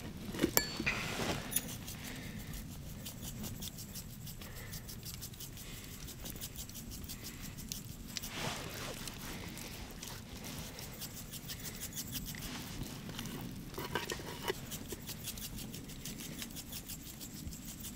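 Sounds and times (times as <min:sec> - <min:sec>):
rustle: 0:00.0 - 0:17.9
spice grains pattering: 0:00.1 - 0:17.9
shaker rattle: 0:00.5 - 0:13.0, 0:13.9 - 0:17.9
glass shaker clink: 0:00.6 - 0:01.6.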